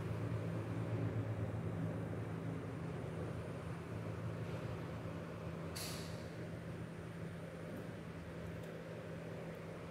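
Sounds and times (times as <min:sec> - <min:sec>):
short sharp hiss: 0:05.8 - 0:06.3.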